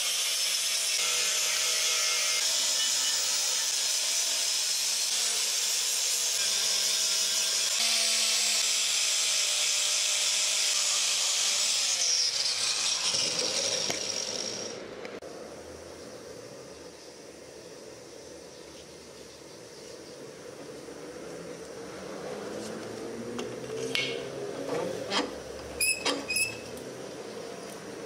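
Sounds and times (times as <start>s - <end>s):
angle grinder grinding steel: 0.0s - 14.8s.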